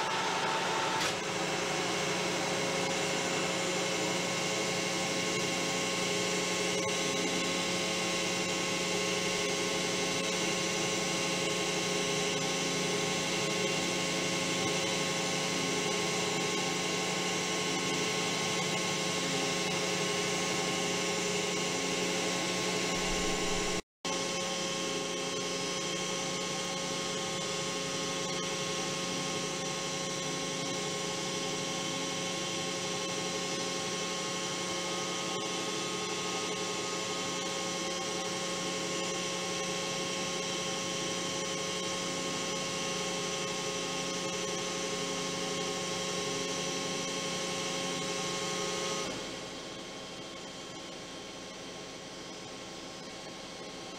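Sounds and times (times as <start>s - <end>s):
metal lathe humming: 23.0s - 23.8s.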